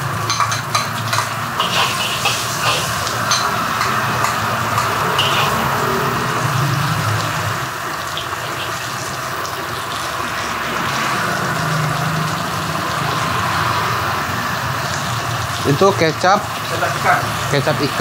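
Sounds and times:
greens sizzling in a hot wok: 0.0s - 18.0s
metal spatula in a wok: 0.2s - 5.9s.

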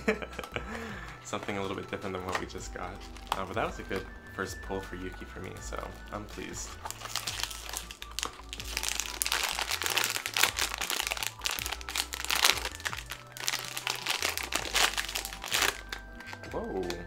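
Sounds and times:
foil bag crinkling: 2.9s - 3.5s, 6.4s - 16.9s.

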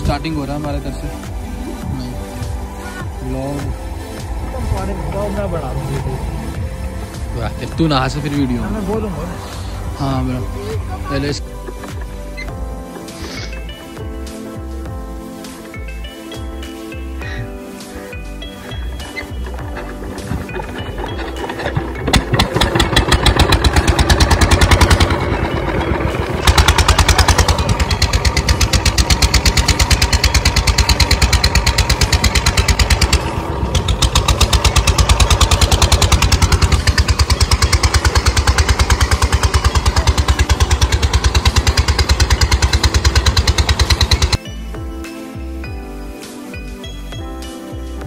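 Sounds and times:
diesel engine exhaust beat: 0.0s - 48.0s
diesel engine pull-started: 18.7s - 44.4s.

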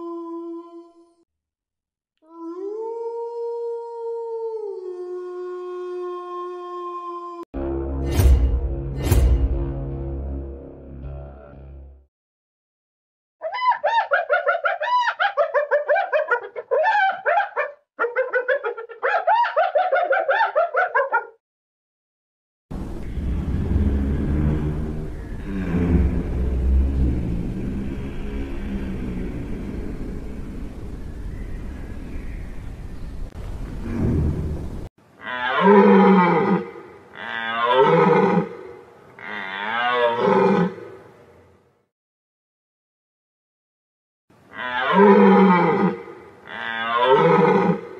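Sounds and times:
low rumbling noise: 22.7s - 34.9s.

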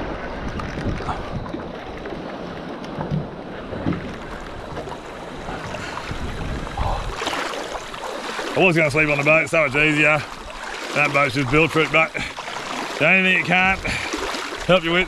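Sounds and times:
wind on microphone: 0.0s - 2.3s, 2.9s - 7.6s
water moving around boat: 0.0s - 15.0s.

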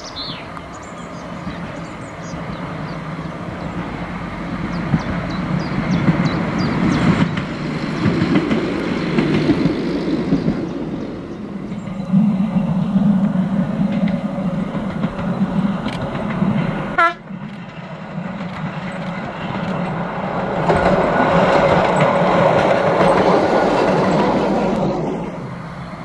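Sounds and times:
birds chirping: 0.0s - 16.8s
diesel railcar passing: 0.0s - 26.0s
wheels clicking over rails: 3.6s - 25.6s.

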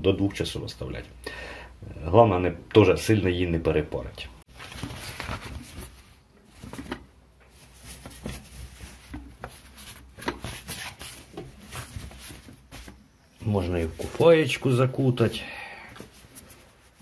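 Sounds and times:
towel rustling: 4.5s - 15.3s, 16.0s - 17.0s.

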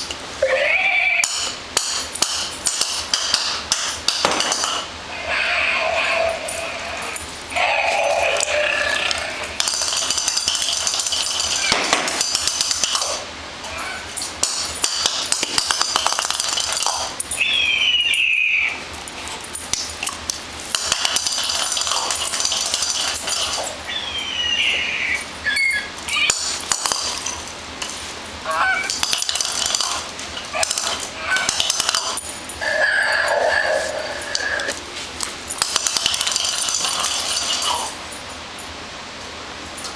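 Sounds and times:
electronic sound effects: 0.4s - 1.2s
dog toy recorded voices: 0.4s - 1.4s, 5.1s - 9.5s, 17.3s - 18.9s, 21.5s - 27.1s, 28.4s - 34.7s
falling electronic whistles: 17.4s - 18.8s.

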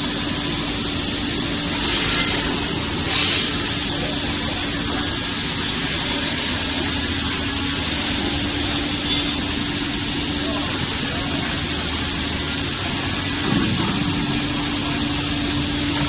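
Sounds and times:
saw machine humming: 0.0s - 16.0s.

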